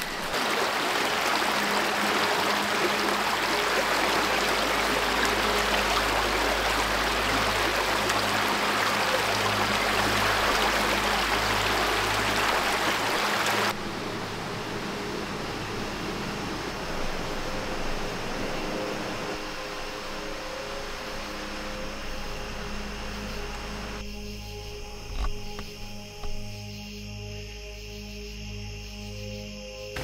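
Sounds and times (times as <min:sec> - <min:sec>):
creek running over rocks: 0:00.0 - 0:18.0
steady hiss: 0:00.0 - 0:26.7.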